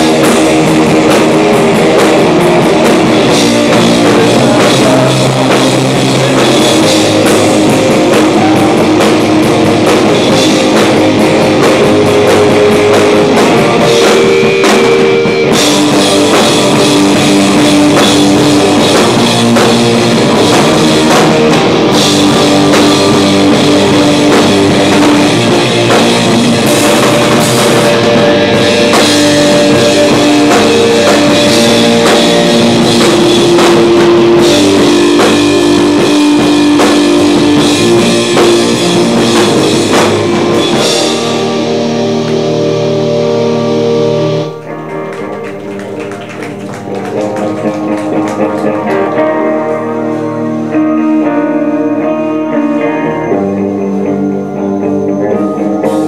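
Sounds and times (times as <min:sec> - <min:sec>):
drum kit: 0:00.0 - 0:56.0
electric guitars: 0:00.0 - 0:56.0.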